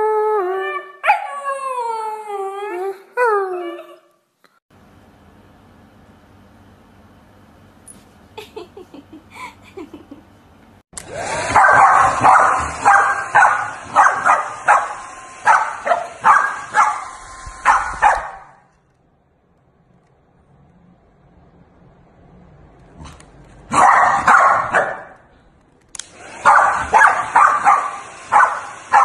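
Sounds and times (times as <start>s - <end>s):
hair dryer blowing: 11.0s - 18.5s, 26.0s - 29.0s
dog barking sharply: 11.5s - 18.6s, 23.7s - 25.2s, 26.4s - 29.0s.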